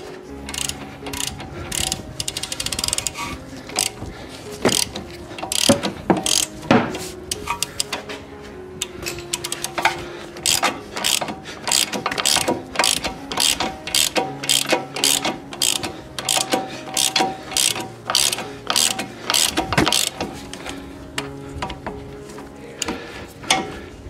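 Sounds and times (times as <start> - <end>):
socket ratchet clicking: 0.4 - 4.0, 4.6 - 6.7, 7.3 - 8.0, 9.1 - 20.8.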